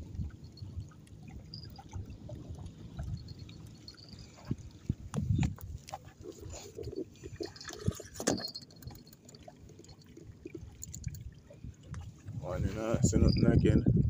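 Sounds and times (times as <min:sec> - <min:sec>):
water sloshing between boulders: 0:00.0 - 0:13.4.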